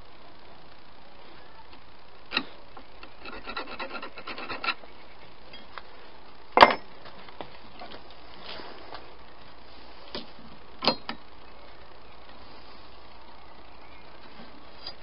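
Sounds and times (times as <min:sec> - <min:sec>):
rubbing and scraping: 0:03.1 - 0:04.9.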